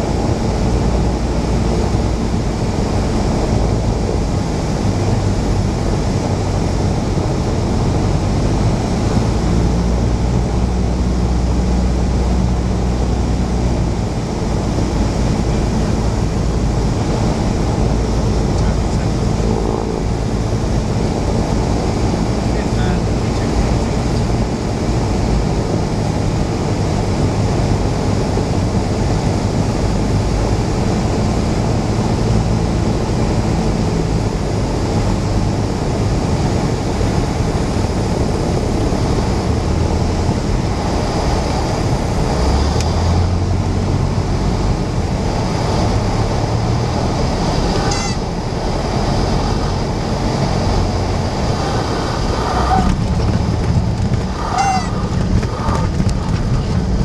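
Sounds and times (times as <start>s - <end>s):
propeller aircraft engine: 0.0s - 57.0s
airflow noise: 10.8s - 24.9s, 37.0s - 57.0s
stall warning horn squealing: 47.7s - 48.5s, 51.8s - 53.0s, 54.3s - 55.2s.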